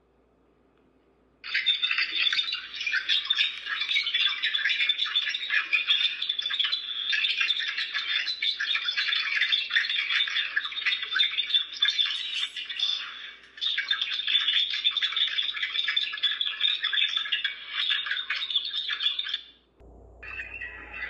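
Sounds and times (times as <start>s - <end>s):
faint high whine: 19.8s - 21.0s.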